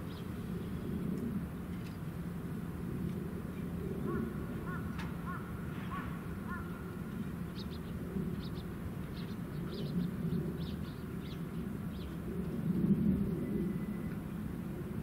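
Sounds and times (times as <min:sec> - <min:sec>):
steady low rumble: 0:00.0 - 0:15.0
birds calling: 0:04.0 - 0:12.2.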